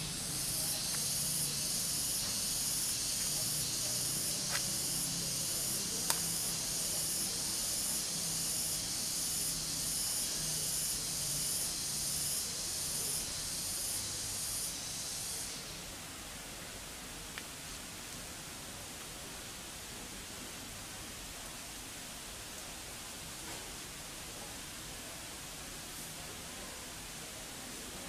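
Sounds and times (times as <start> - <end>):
cicadas buzzing: 0.0 - 16.0
sharp click: 6.0 - 6.4.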